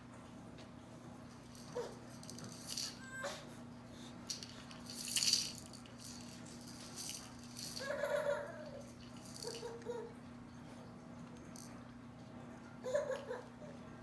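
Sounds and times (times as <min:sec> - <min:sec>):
rattle shaking: 0:01.3 - 0:03.0, 0:04.2 - 0:09.9, 0:11.5 - 0:11.7.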